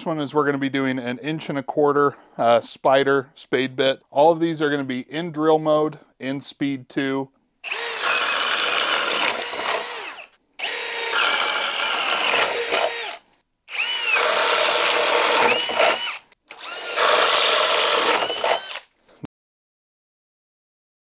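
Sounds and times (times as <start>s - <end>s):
cordless drill boring through wood: 7.6s - 18.9s.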